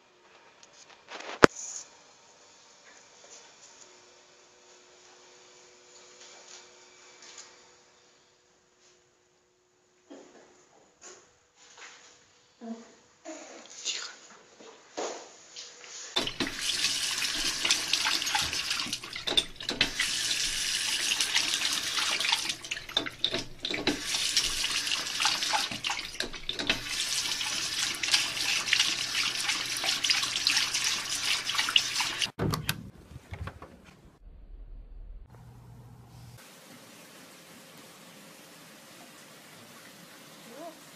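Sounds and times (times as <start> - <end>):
water splashing into sink: 16.2 - 32.4.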